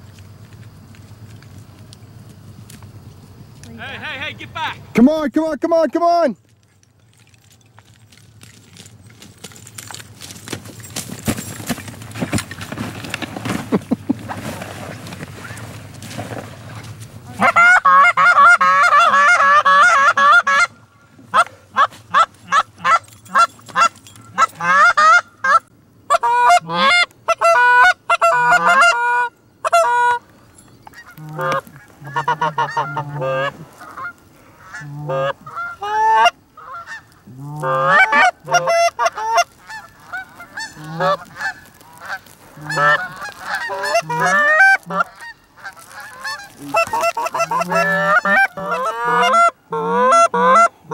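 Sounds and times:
geese honking and clucking: 15.1s - 15.8s, 16.7s - 50.9s.

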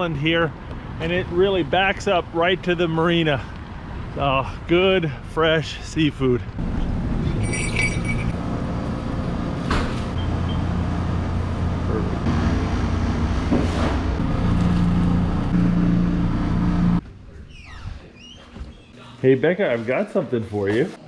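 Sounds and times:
low machine hum: 6.6s - 17.0s.

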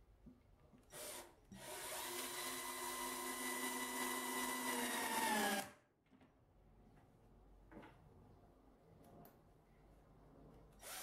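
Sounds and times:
cordless drill motor running: 1.0s - 5.7s.

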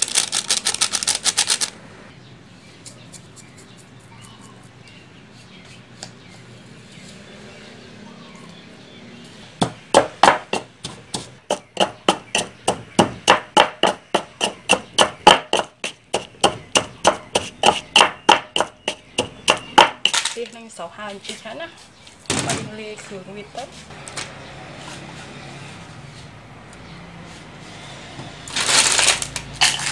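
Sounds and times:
pestle pounding in wooden mortar: 9.6s - 20.2s.

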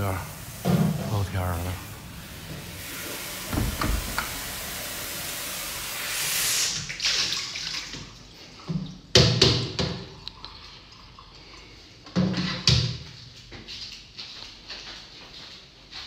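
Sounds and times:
tap water running into sink: 0.0s - 11.0s.

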